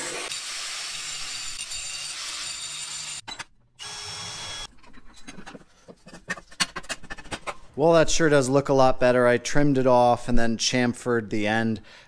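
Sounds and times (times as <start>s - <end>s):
power tool grinding steel: 0.0s - 3.2s.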